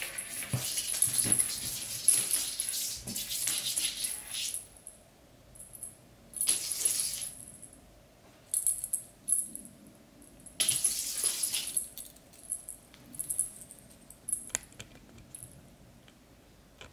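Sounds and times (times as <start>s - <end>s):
small metal bell jingling: 10.5s - 14.5s.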